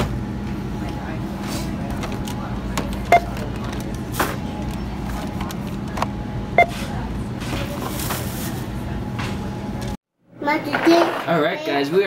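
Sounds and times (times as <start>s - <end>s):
store background hum: 0.0s - 12.0s
barcode scanner beeping: 3.0s - 3.4s, 6.6s - 6.8s.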